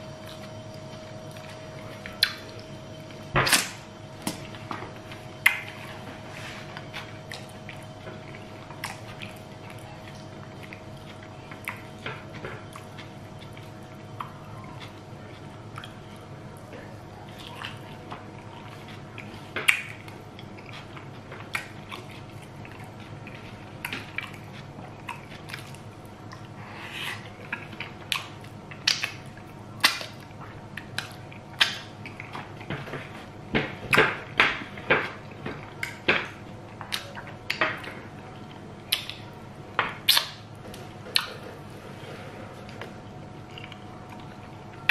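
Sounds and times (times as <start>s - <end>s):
man chewing: 0.0s - 33.4s, 40.0s - 44.9s.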